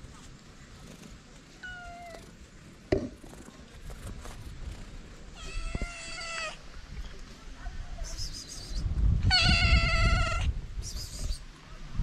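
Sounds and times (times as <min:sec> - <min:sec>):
cat meowing: 0:01.6 - 0:02.2, 0:05.4 - 0:06.6, 0:09.3 - 0:10.5.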